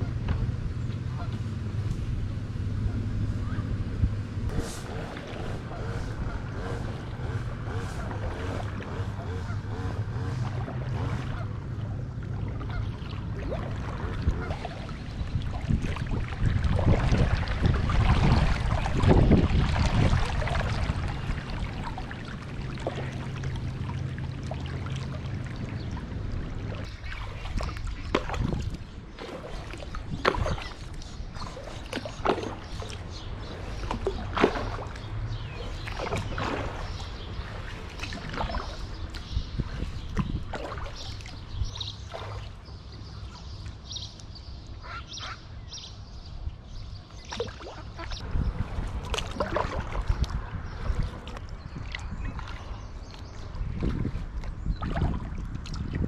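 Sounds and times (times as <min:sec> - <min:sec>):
steady low hum: 0:00.0 - 0:44.8
kayak paddle splashing: 0:04.4 - 0:45.0, 0:47.2 - 0:56.0.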